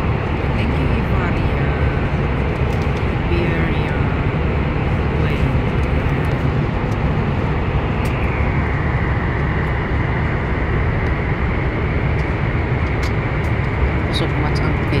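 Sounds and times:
airliner cabin rumble: 0.0 - 15.0.

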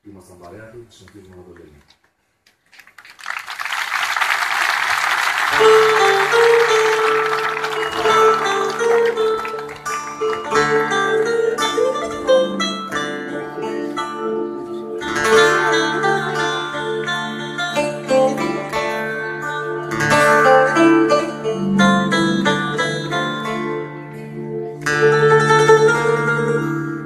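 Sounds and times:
audience applause: 2.6 - 11.2
acoustic guitars picking: 5.5 - 27.0.

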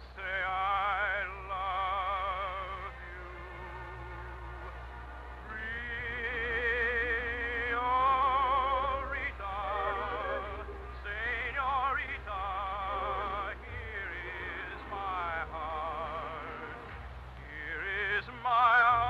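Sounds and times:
steady low hum: 0.0 - 19.0
person singing with vibrato: 5.5 - 19.0.

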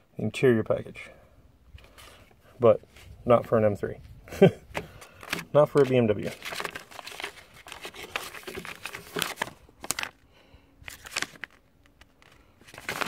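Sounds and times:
glossy paper rustling: 4.7 - 13.0.

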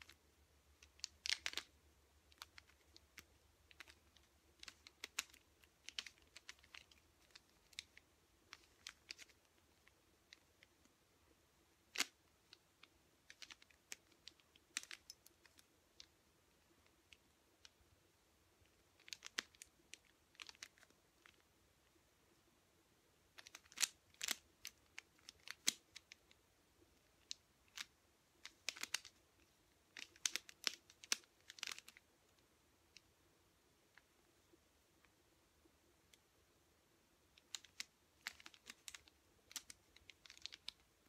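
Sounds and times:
puzzle cube layers clicking: 0.8 - 10.9, 11.9 - 17.8, 18.7 - 21.5, 23.3 - 26.4, 27.0 - 32.1, 37.4 - 41.0.

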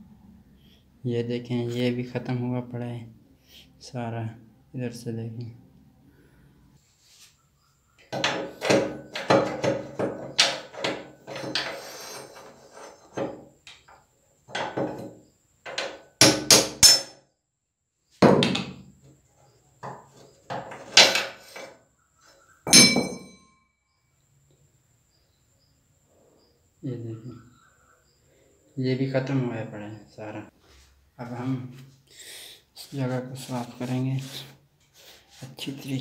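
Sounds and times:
hammer striking metal: 15.8 - 17.2, 22.7 - 23.5.

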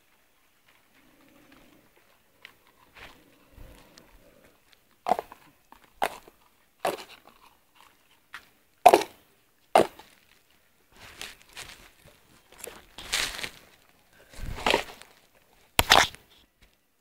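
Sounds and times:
dry food crunching: 1.0 - 16.2
soft rustling: 10.0 - 16.8.

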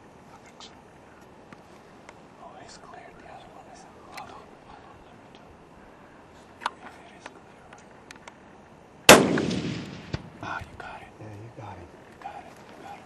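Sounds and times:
faint clicks: 4.1 - 4.3
rifle shot with echo: 9.1 - 10.5.

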